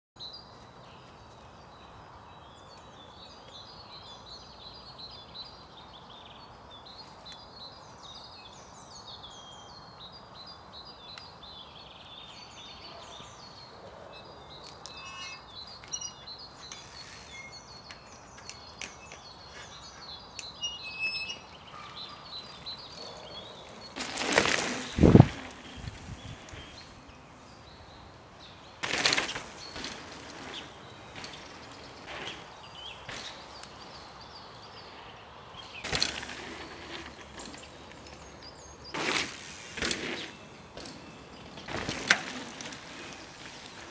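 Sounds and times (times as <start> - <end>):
birds chirping and singing: 1.7 - 43.9
bike tyre noise on dirt: 11.4 - 43.9.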